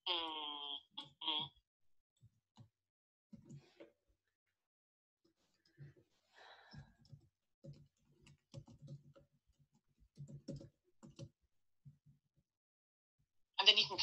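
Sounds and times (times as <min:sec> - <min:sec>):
typing on computer keyboard: 0:06.7 - 0:11.4.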